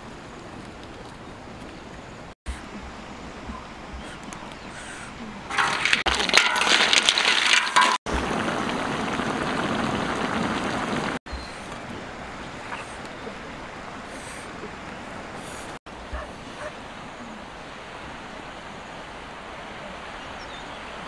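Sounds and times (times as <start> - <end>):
broth bubbling and hissing: 3.9 - 15.8
wood fire crackling: 5.5 - 11.2.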